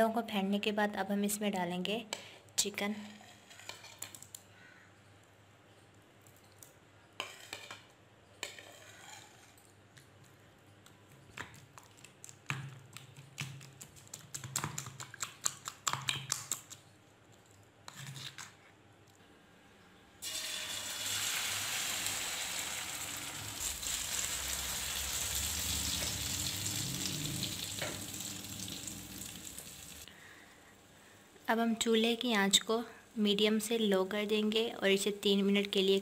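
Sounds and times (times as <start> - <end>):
metal spoon scraping a plate: 8.4 - 9.6.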